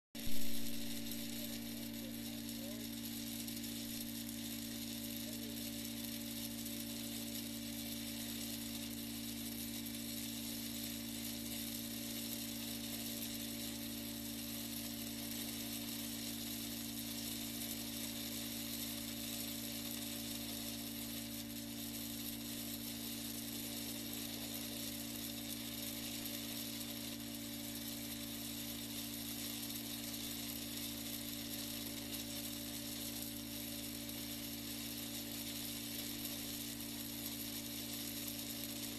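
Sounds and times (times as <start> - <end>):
low hum: 0.2 - 1.8.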